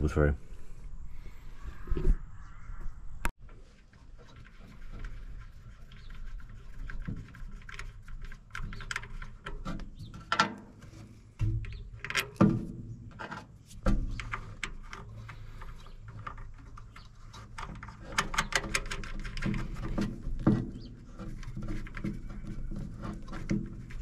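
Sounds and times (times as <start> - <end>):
cable rubbing and scraping metal: 3.8 - 11.4, 13.1 - 24.0.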